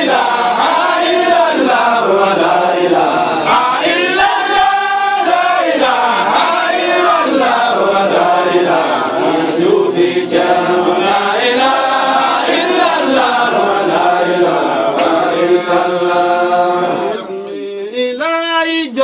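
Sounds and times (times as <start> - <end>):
men chanting devotional song: 0.0 - 19.0
man singing alone: 13.2 - 19.0.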